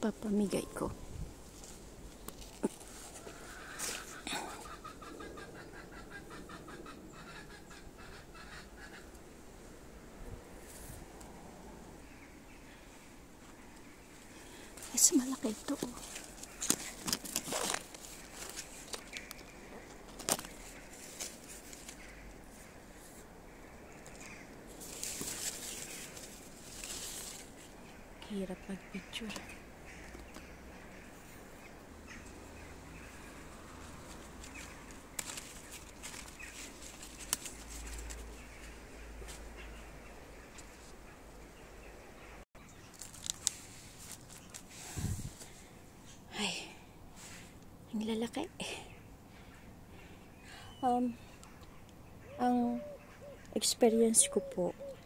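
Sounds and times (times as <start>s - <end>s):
leaves rustling: 0.0s - 5.4s, 7.7s - 51.6s
clicks and crackles: 15.6s - 22.4s, 34.1s - 39.4s, 42.9s - 44.7s.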